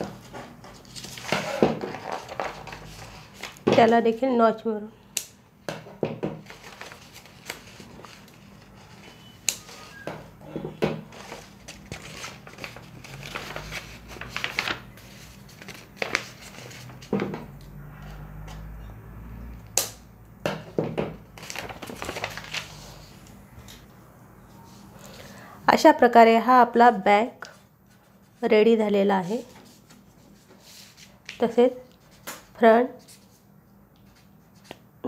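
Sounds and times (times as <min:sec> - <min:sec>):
stiff paper rustling and crinkling: 0:00.0 - 0:03.7, 0:06.4 - 0:09.9, 0:11.0 - 0:17.1, 0:21.4 - 0:23.2, 0:29.2 - 0:32.3.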